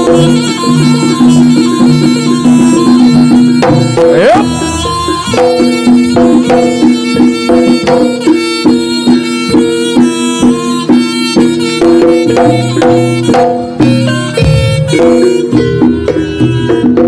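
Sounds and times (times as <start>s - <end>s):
percussion strikes: 0.0s - 17.0s.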